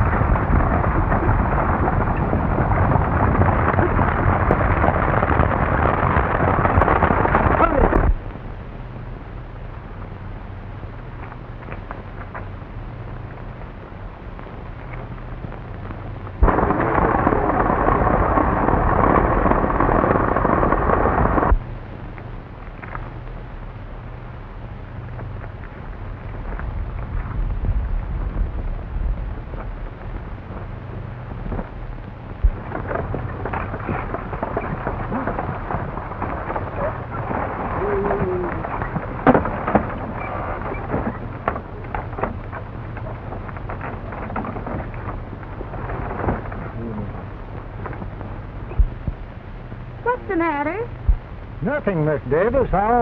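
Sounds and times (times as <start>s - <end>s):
film soundtrack hum and crackle: 0.0s - 53.0s
horse hooves and wheels rumbling: 0.0s - 53.0s.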